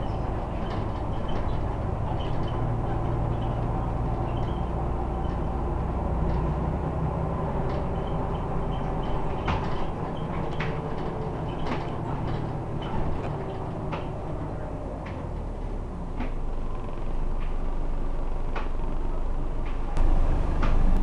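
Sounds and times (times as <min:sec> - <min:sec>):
bodywork rattles: 0:00.0 - 0:06.6, 0:07.3 - 0:15.3
bus diesel engine running: 0:00.0 - 0:21.0.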